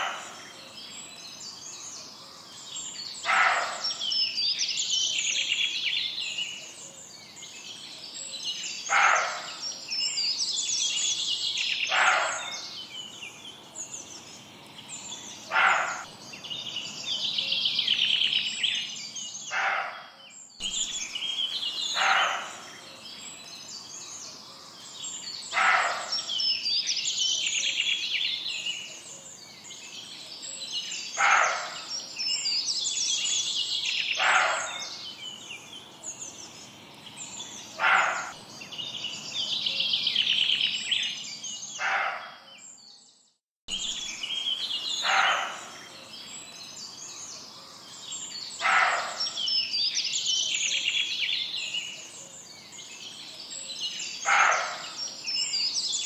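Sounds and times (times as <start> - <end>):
lower bird call: 0.0 - 0.8
birds chirping: 0.0 - 43.1, 43.7 - 56.0.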